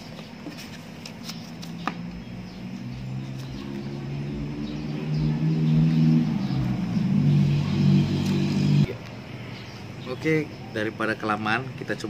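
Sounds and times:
paper booklet pages turning: 0.4 - 1.9
low engine hum: 1.5 - 8.9.

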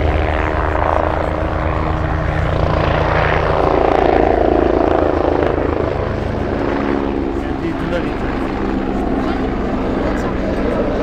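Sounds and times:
helicopter rotor beating: 0.0 - 11.0
turbine whine: 0.0 - 11.0.

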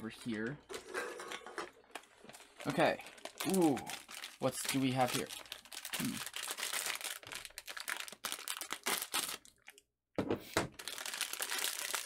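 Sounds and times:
plastic packaging crinkling: 0.7 - 9.8, 10.7 - 12.0.

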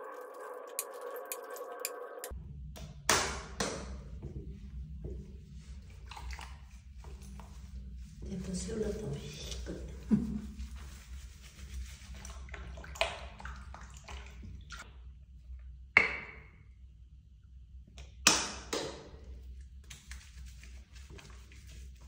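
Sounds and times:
water sloshing in a tub: 4.0 - 15.1, 19.0 - 22.0.

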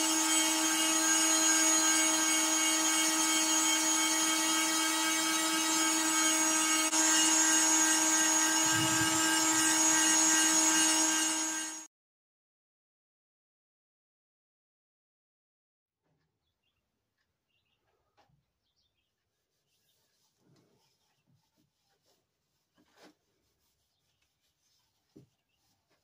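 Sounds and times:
sander motor whine: 0.0 - 11.9
sandpaper hissing on wood: 6.9 - 11.8.

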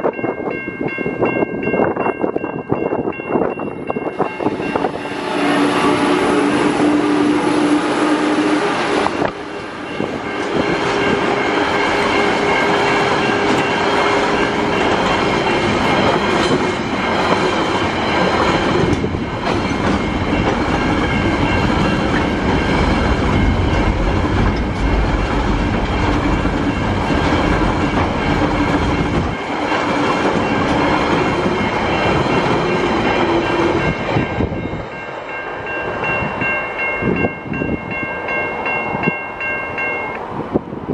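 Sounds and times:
crossing warning bell ringing: 0.0 - 40.6
freight train wheels clattering: 3.0 - 35.0.

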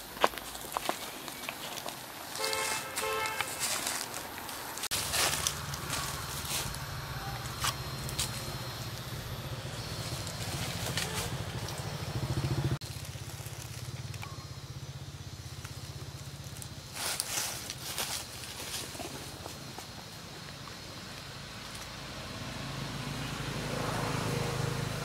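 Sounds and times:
dry leaves crackling: 0.0 - 21.9
small engine idling: 5.0 - 21.5.

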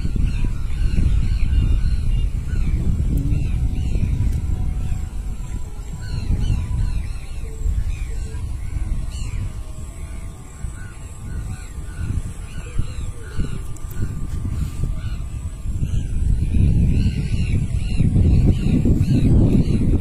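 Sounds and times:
birds calling: 0.0 - 20.0
loud low rumble: 1.5 - 7.2.

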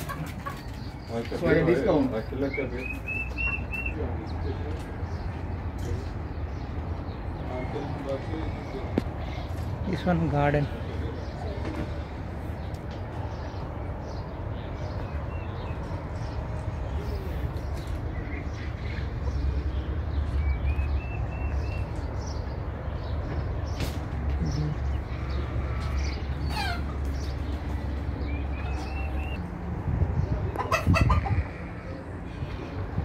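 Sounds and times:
high chirping calls: 2.2 - 4.4, 24.4 - 29.4
steady low rumble: 10.7 - 33.0
chicken squawk: 26.4 - 27.1, 30.6 - 32.0.

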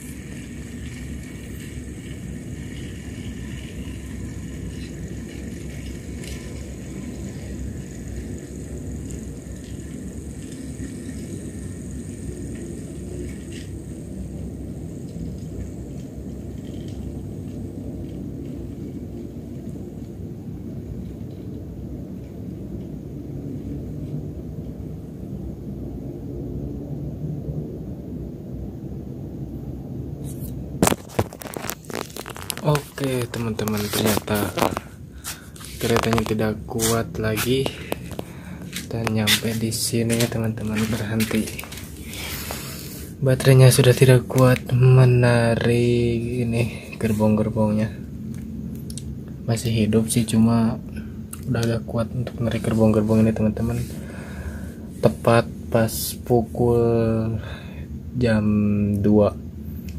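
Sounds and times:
thin high motor hum: 0.0 - 21.0
model train rumbling: 0.0 - 26.3, 31.6 - 48.4.

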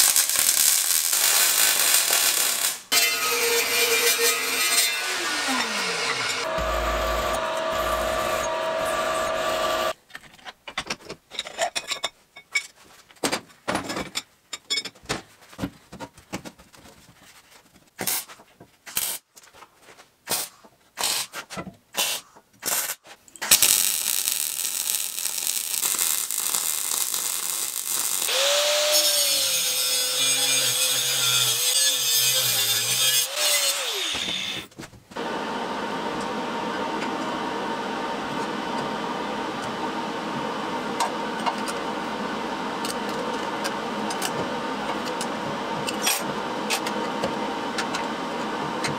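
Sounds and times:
welding bursts: 0.0 - 9.9, 22.8 - 34.6
drill press boring into steel: 5.0 - 9.9
motor winding down: 5.1 - 9.9
loud steady machine noise: 5.3 - 9.9, 35.2 - 48.9.

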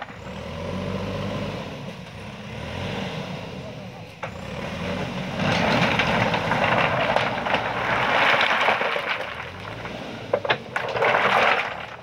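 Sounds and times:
diesel engine under load: 0.0 - 12.0
rocks grinding against steel bucket: 4.3 - 12.0.

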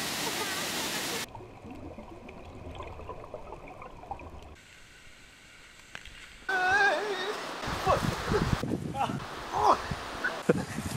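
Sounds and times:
underwater gurgling and bubbling: 1.3 - 4.6.

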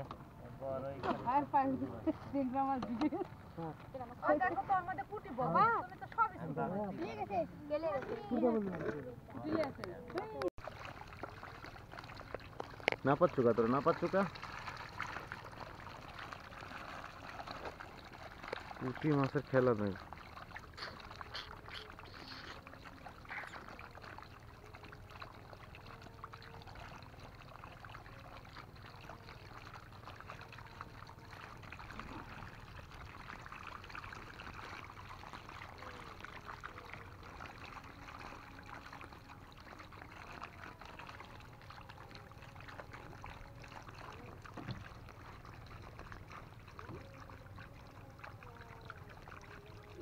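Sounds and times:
water trickling: 0.0 - 50.0
fish splashing at the surface: 10.6 - 50.0.

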